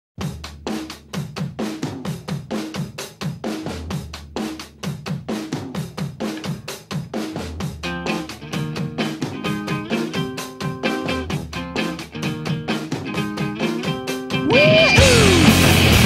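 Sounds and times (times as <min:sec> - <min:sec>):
drum kit beat: 0:00.2 - 0:16.0
pitched instruments: 0:07.8 - 0:16.0
bass line: 0:10.9 - 0:16.0.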